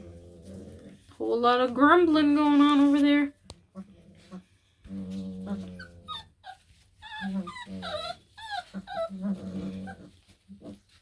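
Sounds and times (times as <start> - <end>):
puppies growling: 0.0 - 11.0
puppies whining: 3.7 - 11.0.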